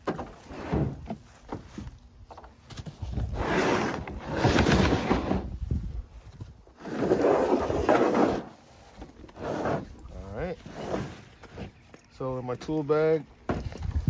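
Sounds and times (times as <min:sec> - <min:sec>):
tool bag scraping and rustling: 0:00.2 - 0:01.5, 0:02.9 - 0:05.9, 0:06.6 - 0:11.8.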